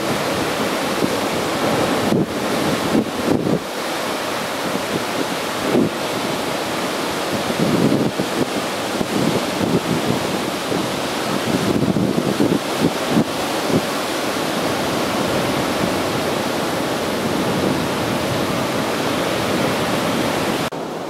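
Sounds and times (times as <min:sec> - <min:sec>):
wind buffeting microphone: 0:00.0 - 0:20.8
surf washing over rocks: 0:00.0 - 0:21.0.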